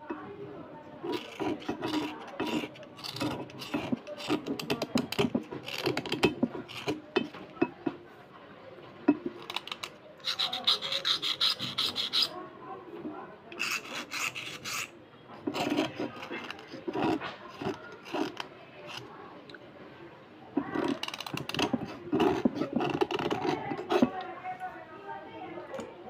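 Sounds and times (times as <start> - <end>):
knife scraping slate pencils: 1.0 - 8.0, 9.2 - 12.4, 13.5 - 19.1, 20.6 - 24.2.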